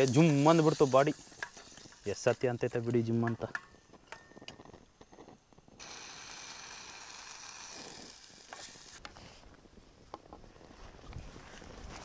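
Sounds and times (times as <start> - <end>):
food sizzling in a pot: 0.0 - 3.2.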